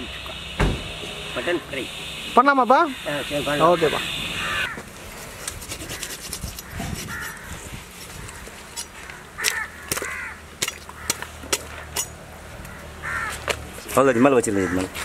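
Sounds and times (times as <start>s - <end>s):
crows cawing: 3.4s - 4.9s, 5.9s - 13.6s, 14.5s - 15.0s.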